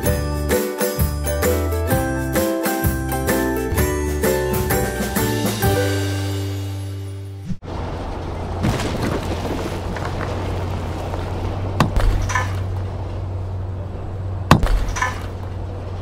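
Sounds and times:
heavy crashes: 0:07.6 - 0:13.0
rubble crumbling and clattering: 0:08.6 - 0:12.9.

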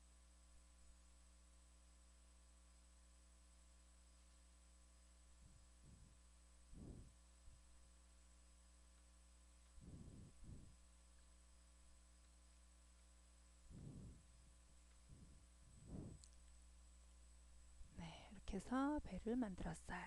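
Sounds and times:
low electrical hum: 0:00.0 - 0:20.0
soft low puffs: 0:05.4 - 0:07.7, 0:09.6 - 0:10.9, 0:13.6 - 0:16.7.

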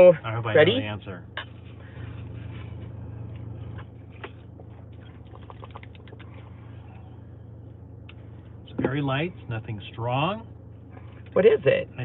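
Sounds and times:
low hum inside car: 0:00.0 - 0:12.0.

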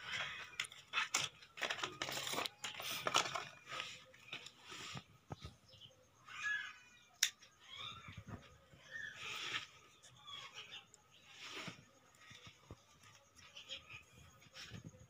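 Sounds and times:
plastic packaging crinkling: 0:00.4 - 0:04.5.

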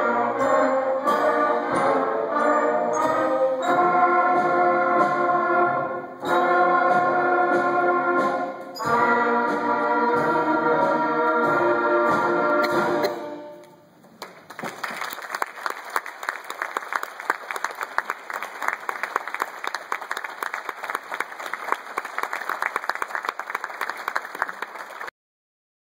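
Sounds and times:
audience applause: 0:14.2 - 0:25.1.

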